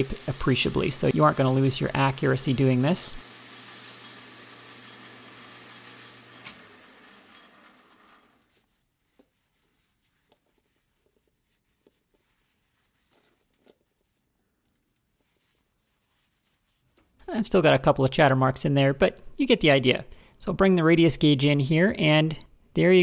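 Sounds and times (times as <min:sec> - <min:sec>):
emery cloth hissing on metal: 0:00.0 - 0:07.0
lathe humming: 0:00.0 - 0:08.5
towel rubbing and ticks: 0:08.4 - 0:17.2.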